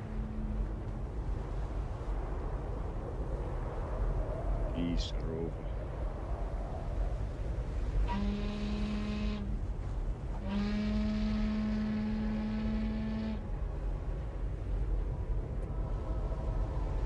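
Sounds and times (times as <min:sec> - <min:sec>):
ship's horn blasts: 0:00.0 - 0:01.2, 0:08.0 - 0:13.5, 0:15.6 - 0:17.0
low rumble: 0:00.0 - 0:17.0.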